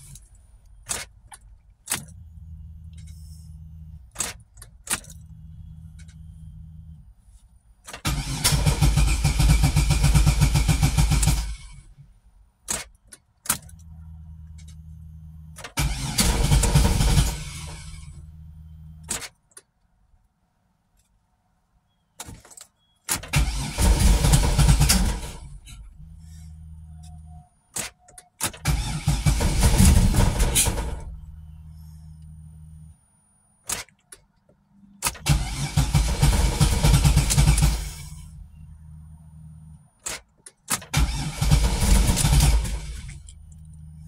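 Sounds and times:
sharp clicks: 0.0s - 2.3s, 4.1s - 6.3s, 12.6s - 14.9s, 33.6s - 35.6s
car engine cranking: 0.0s - 7.2s, 7.8s - 19.6s, 22.2s - 33.0s, 33.7s - 44.0s
low steady hum: 0.0s - 8.0s, 13.5s - 19.1s, 22.8s - 27.8s, 28.7s - 33.7s, 34.6s - 40.0s, 41.3s - 44.0s.

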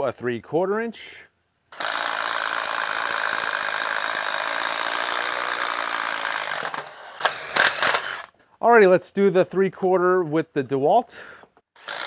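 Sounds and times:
impact driver boring into wood: 1.7s - 8.3s, 11.8s - 12.0s.

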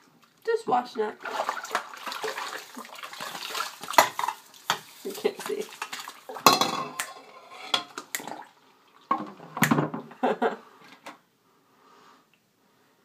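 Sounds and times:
dishes and cutlery clinking: 3.9s - 5.3s, 6.3s - 8.0s.

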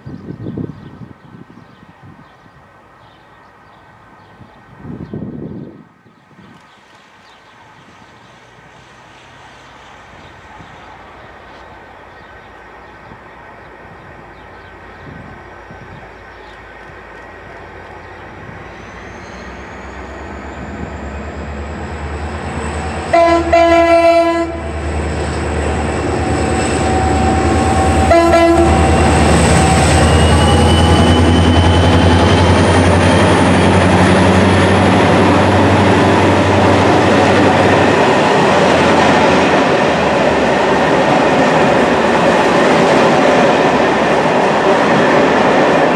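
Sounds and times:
train wheels on rails: 6.5s - 45.9s
locomotive engine: 15.5s - 45.9s
train horn blasts: 22.8s - 25.0s, 26.6s - 31.4s.

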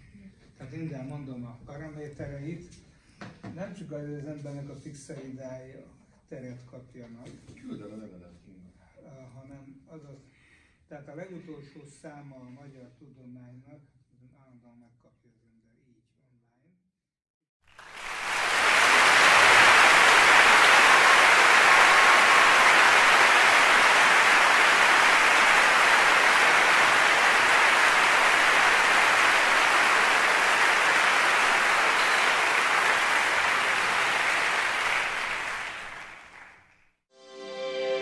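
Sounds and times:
crowd applauding: 17.7s - 36.8s.

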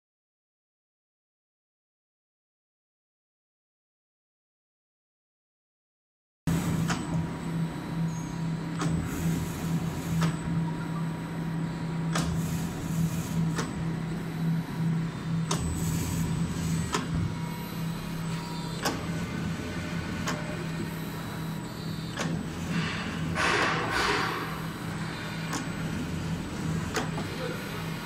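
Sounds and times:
machine motor hum: 6.5s - 28.0s
sharp mechanical click: 12.1s - 12.4s, 15.4s - 15.7s.

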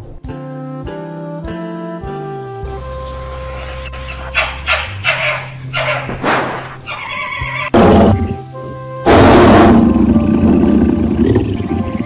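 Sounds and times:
background music: 0.0s - 12.0s
animal yelping calls: 3.0s - 7.8s
loud harsh animal calls: 3.0s - 8.0s.

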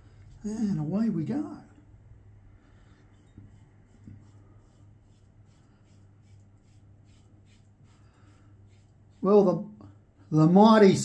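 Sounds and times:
razor scraping stubble: 3.2s - 9.5s.

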